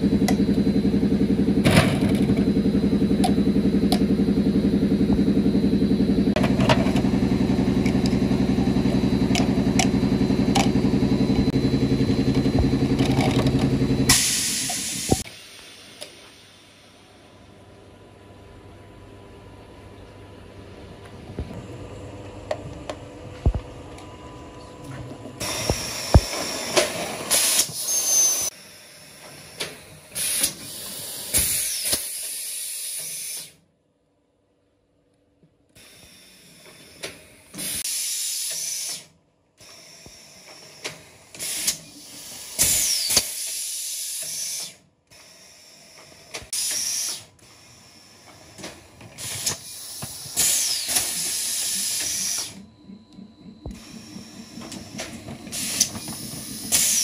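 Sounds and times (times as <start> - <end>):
pneumatic cylinder clicks and clanks: 25.4 - 28.5, 29.2 - 33.6, 35.8 - 47.6, 48.2 - 52.6, 54.6 - 57.0
compressed air hiss: 49.2 - 52.5.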